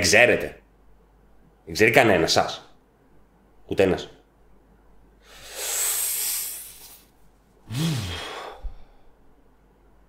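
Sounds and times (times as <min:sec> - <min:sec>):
man grunting: 0:07.7 - 0:08.6
man sighing: 0:07.7 - 0:09.0.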